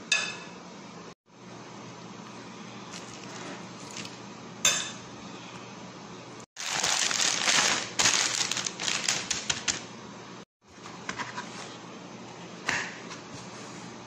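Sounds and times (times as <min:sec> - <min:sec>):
plastic bag crinkling: 0:06.6 - 0:09.8.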